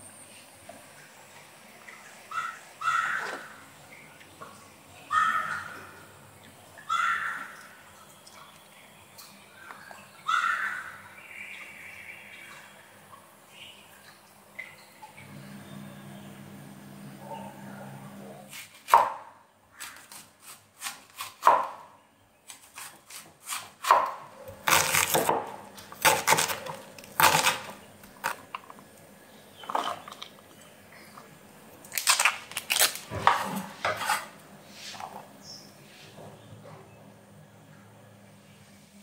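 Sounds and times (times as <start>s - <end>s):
cleaver chopping onion on board: 22.6s - 27.8s.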